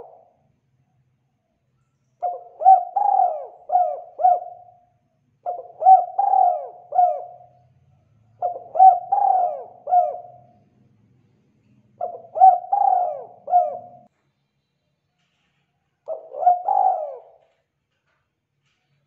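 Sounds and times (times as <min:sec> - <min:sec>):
dove cooing: 0:00.0 - 0:00.4, 0:02.2 - 0:07.7, 0:08.3 - 0:10.7, 0:11.9 - 0:14.1, 0:16.1 - 0:17.6.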